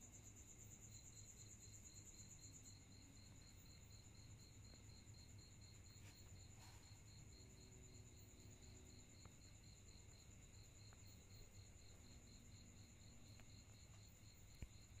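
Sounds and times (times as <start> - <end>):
crickets trilling: 0.0 - 15.0
faint ticks: 13.0 - 15.0.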